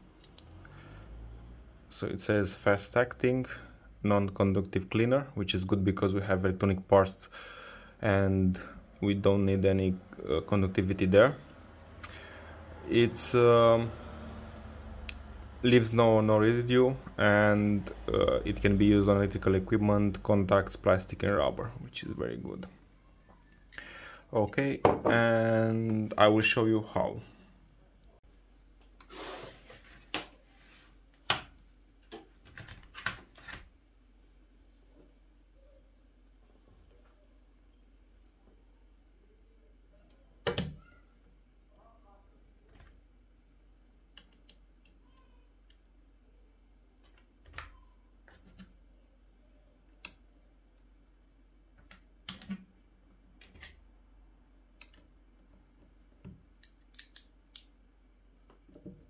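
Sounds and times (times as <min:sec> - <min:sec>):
screwdriver bits clicking: 0:56.6 - 0:57.7.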